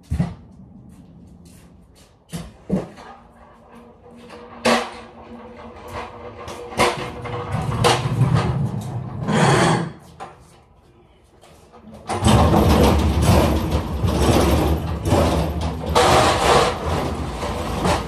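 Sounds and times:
pallet jack rattling on concrete: 2.6s - 9.3s, 11.9s - 18.0s.

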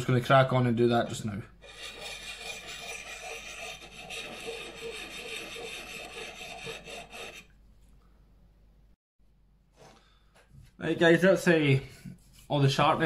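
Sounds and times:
sharpening stone scraping axe edge: 1.6s - 7.5s.

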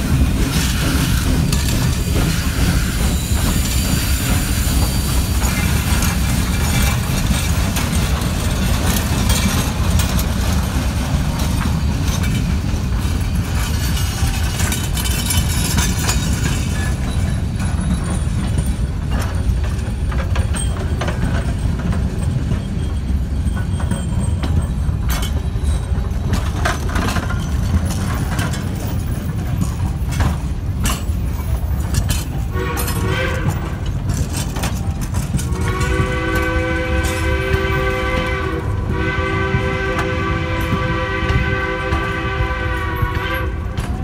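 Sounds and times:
train cars rumbling: 0.0s - 44.0s
wheels clicking over rail joints: 0.0s - 44.0s
steam locomotive chime whistle: 32.4s - 33.8s, 35.3s - 44.0s.

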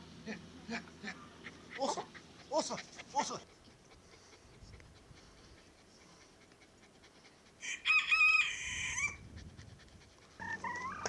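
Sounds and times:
rooster crowing: 7.6s - 9.2s.

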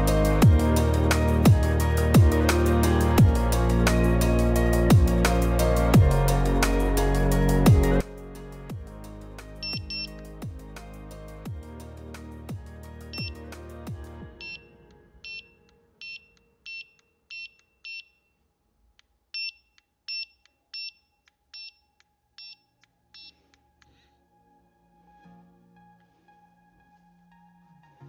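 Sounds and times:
bite alarm beeps: 9.6s - 10.1s, 13.1s - 13.4s, 14.3s - 18.4s, 19.4s - 23.4s.

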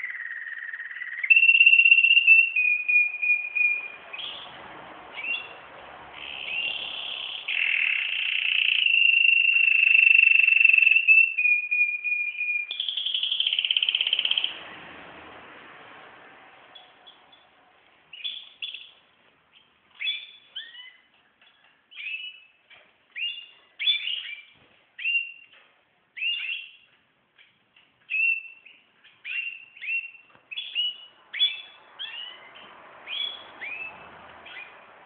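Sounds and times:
small bird chirping: 0.0s - 14.6s, 16.7s - 34.9s.

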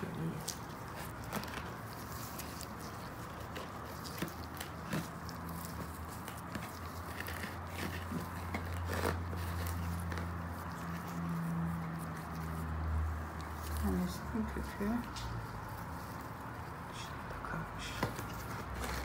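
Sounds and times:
soil crackles and rustles: 0.0s - 19.0s.

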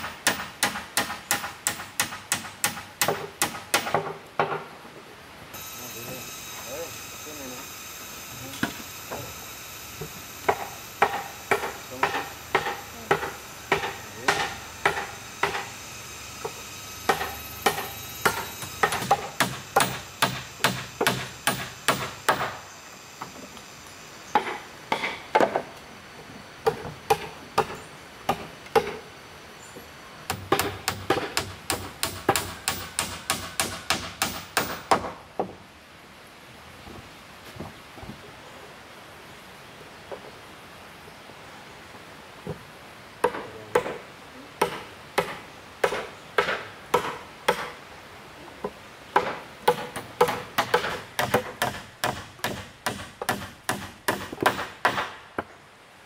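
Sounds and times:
tool striking bamboo: 0.0s - 4.6s, 8.5s - 9.4s, 10.0s - 22.6s, 24.3s - 25.7s, 30.3s - 35.5s, 43.2s - 44.0s, 44.6s - 47.8s, 49.2s - 55.5s.

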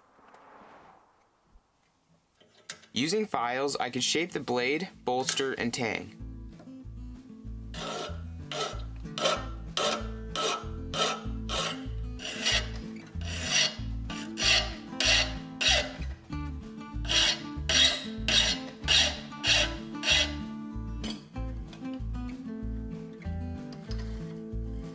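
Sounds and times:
hand file rasping on steel: 7.7s - 16.1s, 17.0s - 20.5s.

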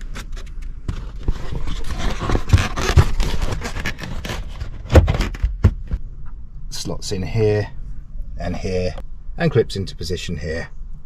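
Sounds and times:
foam block scraping and creaking: 0.0s - 6.0s.

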